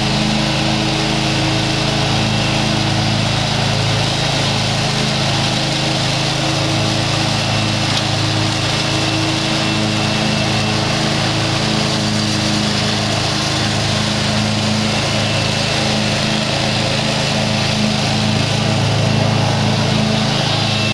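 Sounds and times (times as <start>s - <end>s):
lawn mower engine running: 0.0s - 20.9s.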